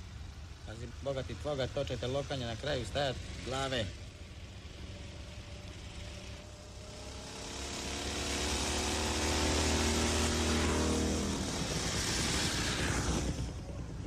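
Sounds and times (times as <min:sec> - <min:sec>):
motorcycles driving past: 0:00.0 - 0:14.0
car driving past: 0:05.2 - 0:13.5.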